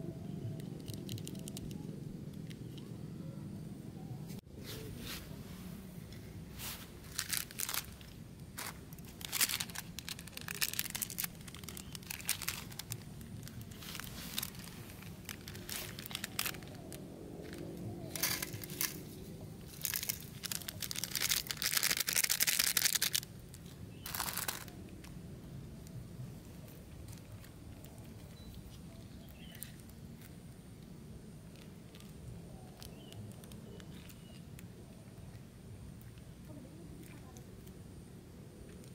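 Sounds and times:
plastic sachets tearing and crinkling: 0:00.6 - 0:02.5, 0:07.0 - 0:25.1, 0:31.5 - 0:34.4.

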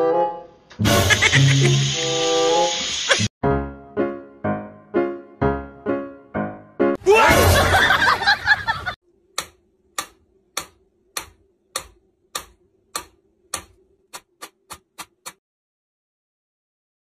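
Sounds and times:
metronome ticking: 0:09.4 - 0:15.4.

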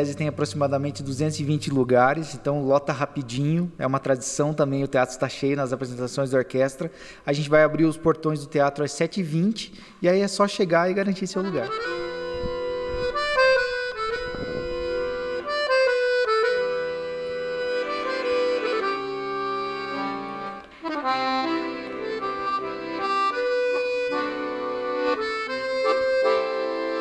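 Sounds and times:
accordion melody: 0:00.0 - 0:02.6, 0:11.2 - 0:27.0.

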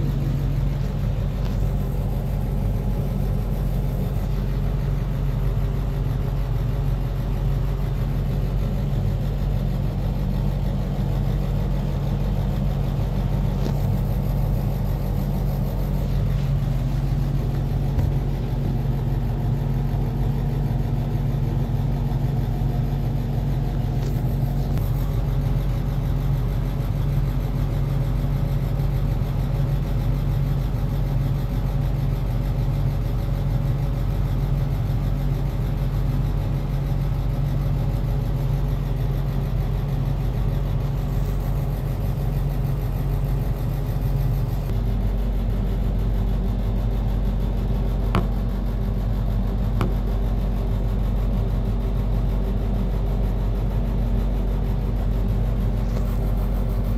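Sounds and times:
low mechanical hum: 0:00.0 - 0:56.9.

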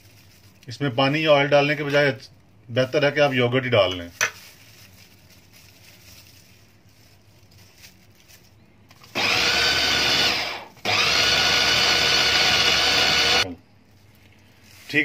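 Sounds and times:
electric food chopper grinding: 0:09.1 - 0:13.5.

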